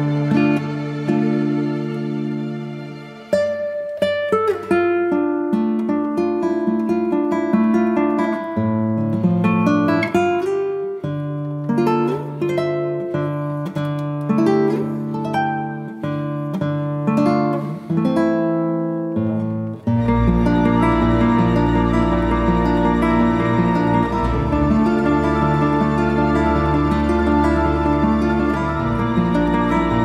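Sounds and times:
plucked acoustic guitar: 0:00.0 - 0:30.0
deep held bass: 0:20.1 - 0:30.0.

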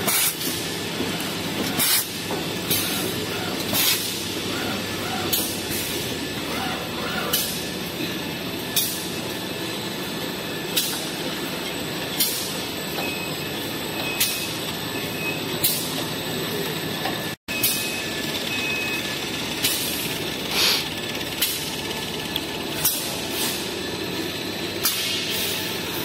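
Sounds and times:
packing machinery running: 0:00.0 - 0:26.0
sharp machine clacks: 0:17.5 - 0:25.9.

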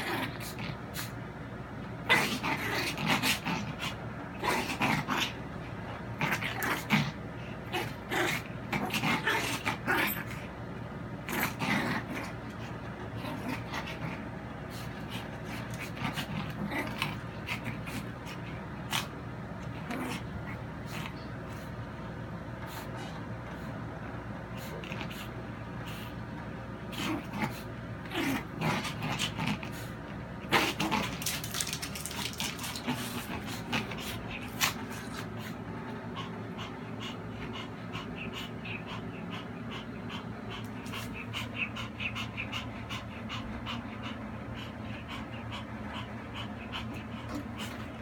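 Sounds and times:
dog panting: 0:31.2 - 0:48.0.

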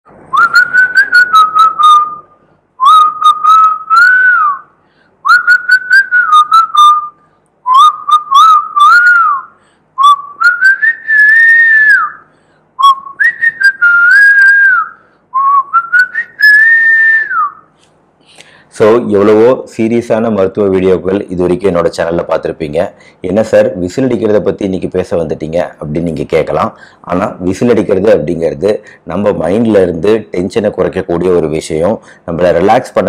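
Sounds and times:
man whistling a tune: 0:00.3 - 0:17.7.

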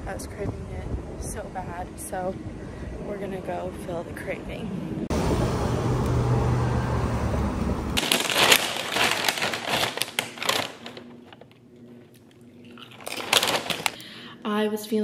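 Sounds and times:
street noise: 0:00.0 - 0:08.0
paper chip bag crinkling: 0:08.0 - 0:14.0.

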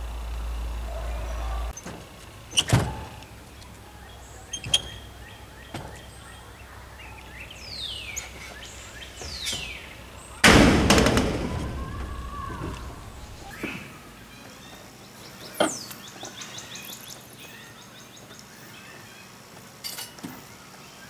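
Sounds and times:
falling squeaks: 0:04.4 - 0:10.4
pole crashing on metal roof: 0:10.4 - 0:13.6.

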